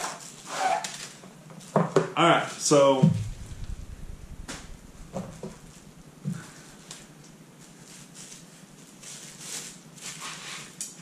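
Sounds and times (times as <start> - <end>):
soft rustling: 3.0 - 10.7.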